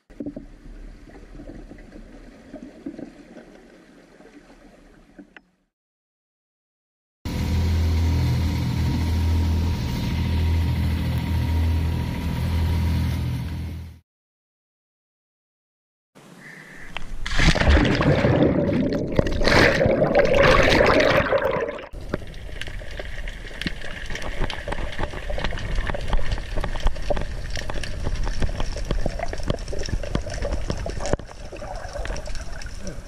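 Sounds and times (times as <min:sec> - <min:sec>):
splashing into the sea: 0:17.2 - 0:33.0
underwater crackle of tiny clicks: 0:22.0 - 0:33.0.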